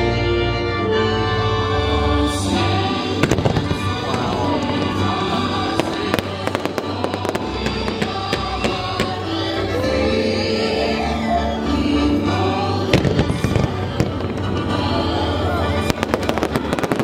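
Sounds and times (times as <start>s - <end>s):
music: 0.0s - 17.0s
fireworks bangs and crackles: 3.0s - 9.5s, 12.8s - 17.0s.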